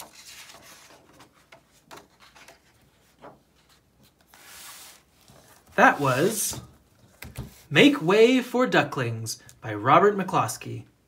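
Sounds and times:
book pages rustling: 0.0 - 7.7
paper sliding swish: 4.3 - 6.5.

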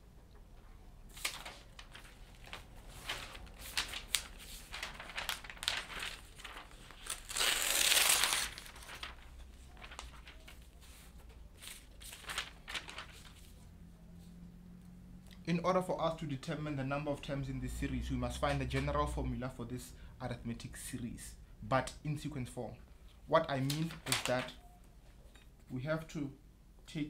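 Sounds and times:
paper crinkling and rustling: 1.1 - 13.7, 23.5 - 25.4.

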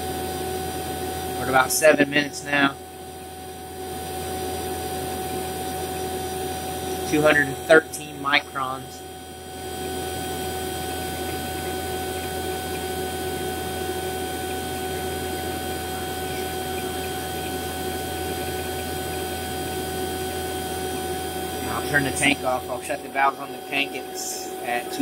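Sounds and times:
vacuum pump humming: 0.0 - 25.0.

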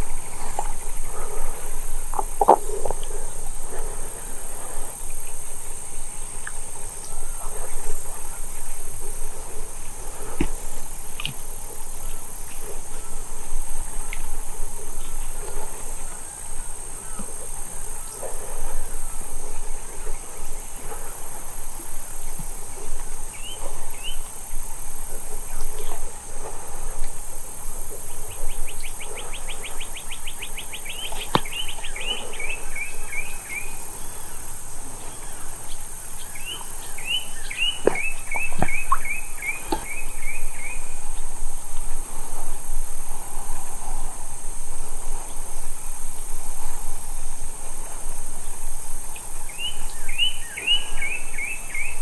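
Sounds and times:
birds calling: 0.0 - 13.2, 28.2 - 41.3, 49.5 - 52.0.

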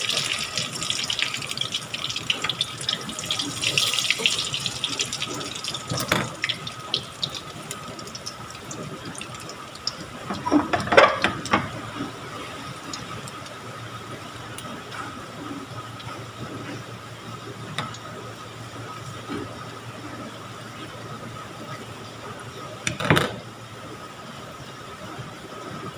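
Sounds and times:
fritters sizzling in oil: 0.0 - 11.0.

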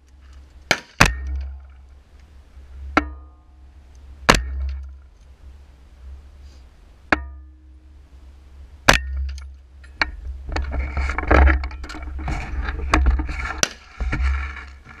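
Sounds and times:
steady low rumble: 0.0 - 15.0
rifle rattling and clinking: 9.2 - 15.0.

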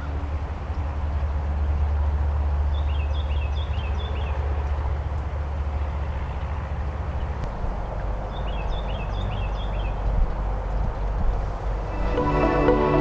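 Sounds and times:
songbird singing: 8.3 - 10.0.

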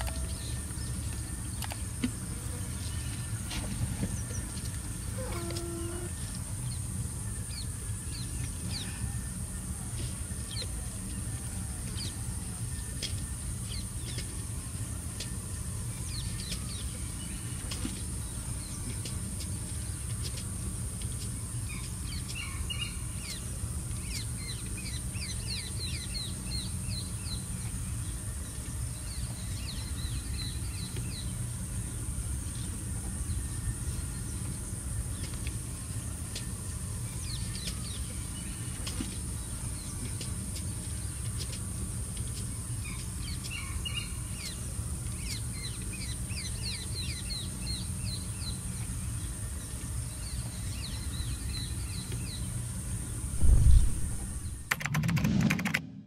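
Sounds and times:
lower bird call: 5.0 - 6.4
steady low rumble: 53.3 - 56.0.

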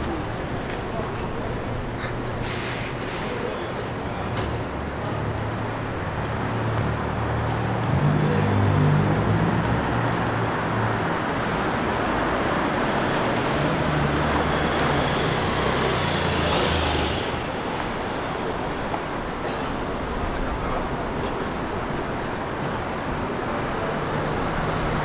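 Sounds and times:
street traffic engine and tyre noise: 0.0 - 25.0.

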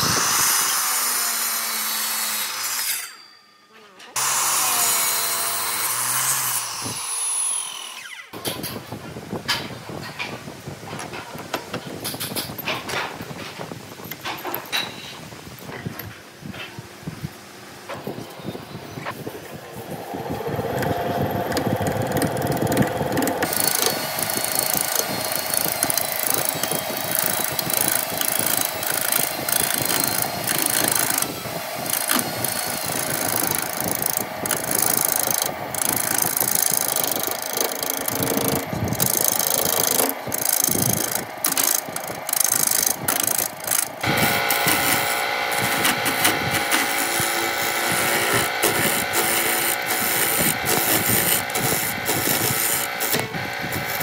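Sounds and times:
chisel scraping spinning wood: 13.9 - 15.0, 19.1 - 54.0
lathe motor whine: 19.1 - 54.0.

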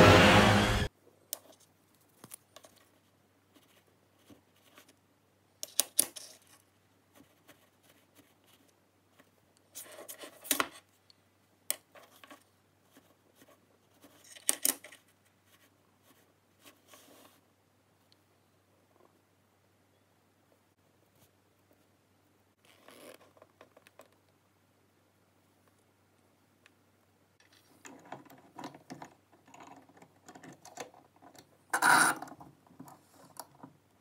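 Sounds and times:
scratchy scrapes on metal plate: 31.8 - 32.2.

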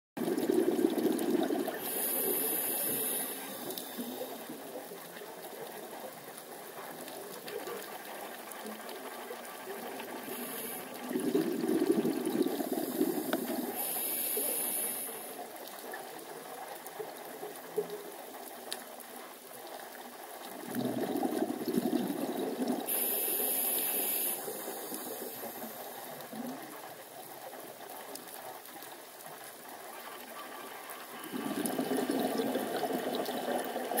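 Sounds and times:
underwater bubbling exhalation: 0.2 - 4.4, 10.2 - 14.8, 20.5 - 26.7, 31.0 - 34.0
regulator hiss: 1.8 - 4.5, 10.1 - 11.1, 12.6 - 15.4, 22.9 - 26.2.

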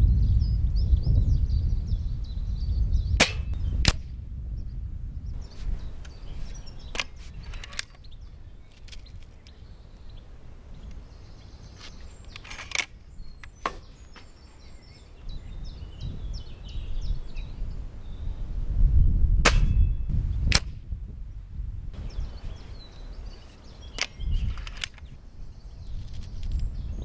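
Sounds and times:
birds chirping: 0.0 - 3.8, 4.5 - 18.6, 22.0 - 27.0
wind rumble on microphone: 0.0 - 27.0
rifle cocking clicks and clunks: 6.8 - 8.1, 12.3 - 13.8, 24.0 - 25.1.

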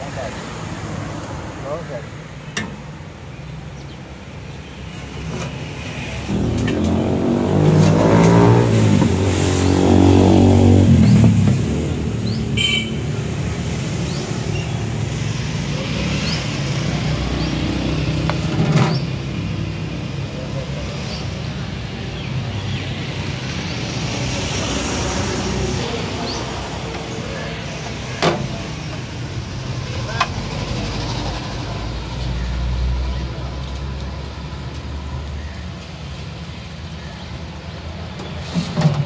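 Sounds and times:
street traffic noise: 0.0 - 39.0
vehicle engine passing by: 5.6 - 12.5.

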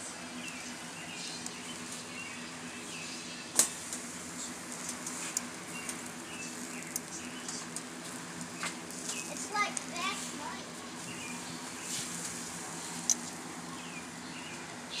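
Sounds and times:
chicken grilling crackles and pops: 0.0 - 15.0
steady low hum: 0.0 - 15.0
sharp snap: 3.5 - 4.0.

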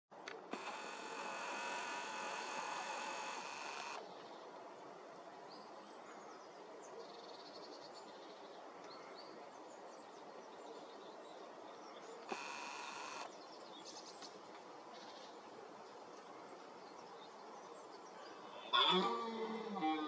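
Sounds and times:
camera zoom motor whirring: 0.3 - 4.0, 12.2 - 13.3.

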